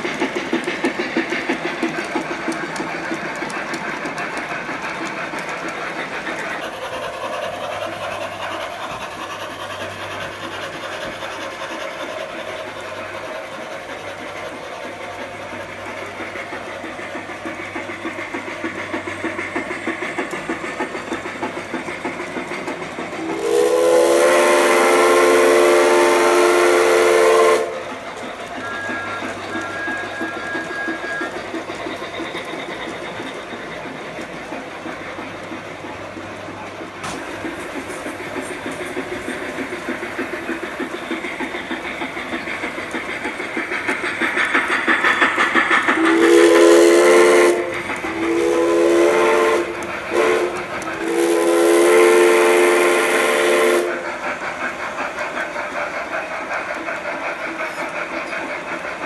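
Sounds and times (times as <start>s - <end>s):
model trains running: 0.0s - 59.0s
chime steam whistle: 23.2s - 27.8s, 28.6s - 31.6s, 45.9s - 54.1s
faint high short whistle: 28.6s - 31.4s.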